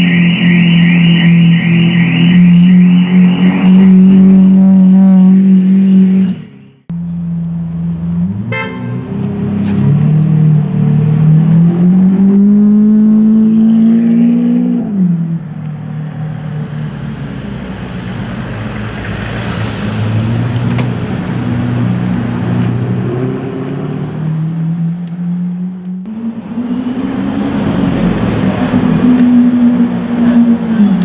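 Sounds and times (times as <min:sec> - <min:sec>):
car engine revving: 0:00.0 - 0:31.0
short car horn toot: 0:08.5 - 0:09.1.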